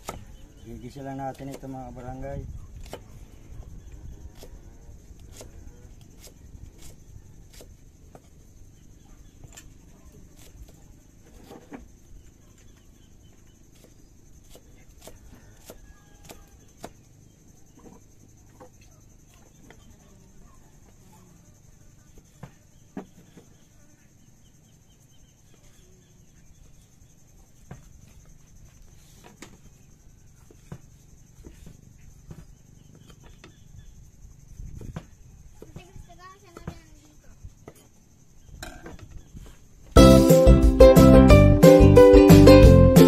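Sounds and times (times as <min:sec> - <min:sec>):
knife chopping on wooden board: 0:07.5 - 0:08.3, 0:13.8 - 0:17.0.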